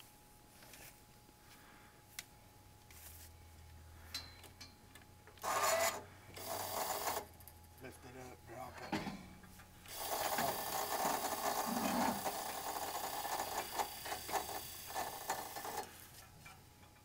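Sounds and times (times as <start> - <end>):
crane electric motor whirring: 5.4 - 7.3, 9.8 - 16.0.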